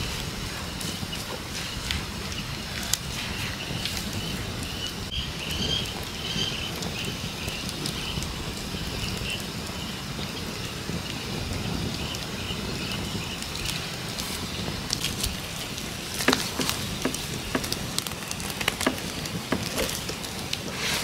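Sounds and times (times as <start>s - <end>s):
steady low rumble: 0.0s - 21.0s
wood fire crackling: 0.0s - 21.0s.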